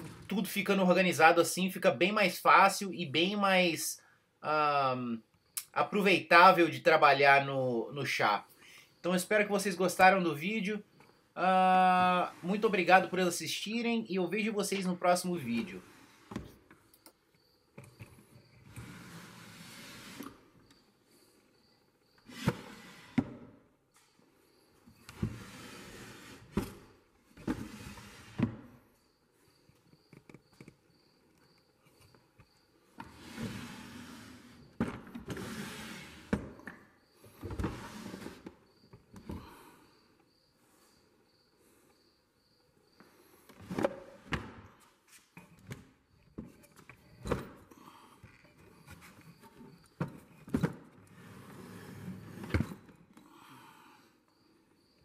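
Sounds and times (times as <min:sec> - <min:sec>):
wooden drawers sliding: 0:00.0 - 0:00.4, 0:18.7 - 0:20.4, 0:22.3 - 0:23.5, 0:25.1 - 0:28.7, 0:33.0 - 0:36.7, 0:37.4 - 0:38.6, 0:50.5 - 0:52.9.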